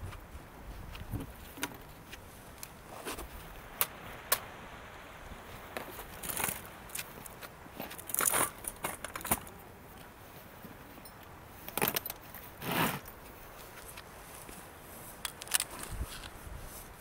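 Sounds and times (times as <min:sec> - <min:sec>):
faint outdoor hiss: 0:00.0 - 0:17.0
light clicks and rustles: 0:05.6 - 0:17.0.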